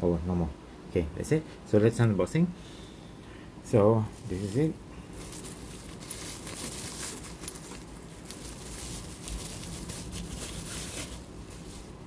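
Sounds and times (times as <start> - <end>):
bubble wrap crinkling: 4.1 - 12.0.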